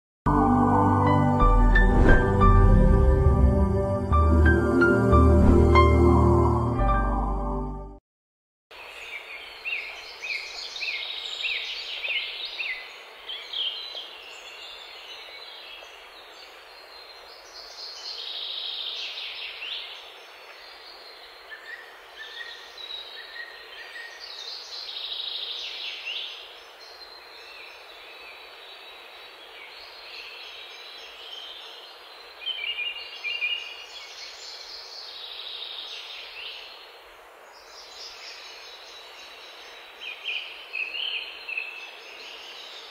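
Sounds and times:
steady outdoor hiss: 8.7s - 42.9s.

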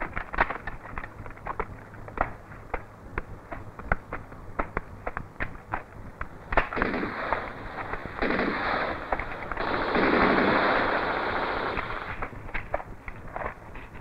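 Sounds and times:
gunshots: 6.5s - 12.4s
rapid automatic gunfire: 6.6s - 12.2s.

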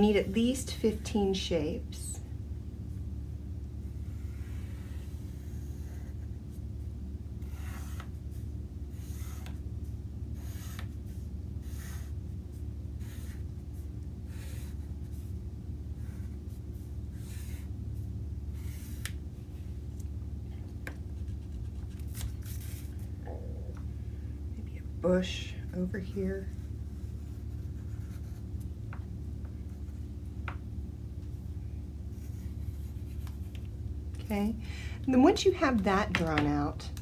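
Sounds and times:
low hum: 0.0s - 37.0s
pencil strokes on paper: 26.4s - 28.5s.

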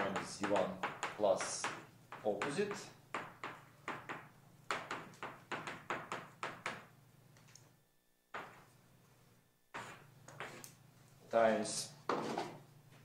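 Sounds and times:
chalk writing on a blackboard: 9.7s - 10.8s.

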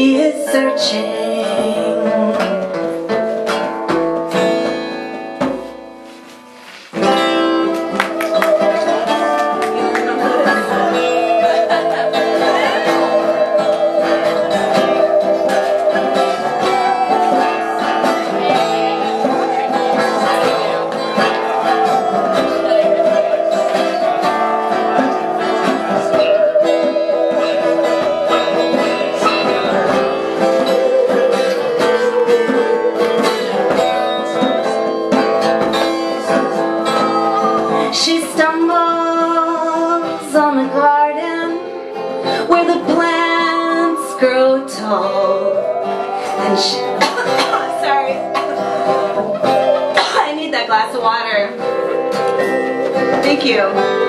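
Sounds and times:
hand drum: 0.0s - 54.0s
strummed acoustic guitar: 0.0s - 54.0s
keyboard: 7.3s - 54.0s
musical saw melody with vibrato: 7.4s - 35.1s, 44.9s - 52.9s.

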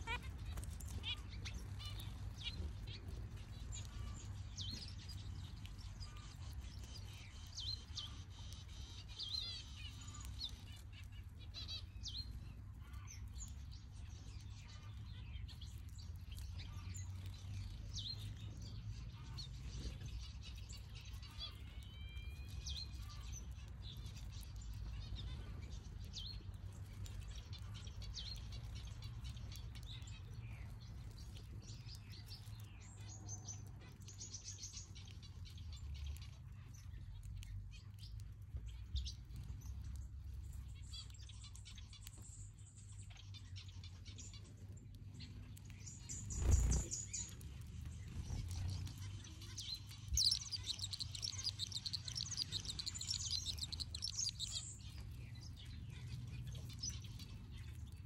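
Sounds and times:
steady low rumble: 34.9s - 58.0s
finches chirping: 45.8s - 57.7s.

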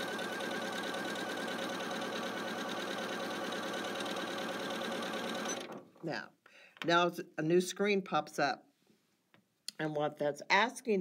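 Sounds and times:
sewing machine motor whine: 0.0s - 5.8s.

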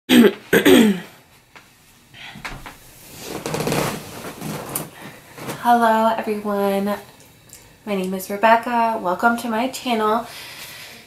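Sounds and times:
clothes and bedding rustling: 1.3s - 7.0s
bed creaking: 2.4s - 6.0s.

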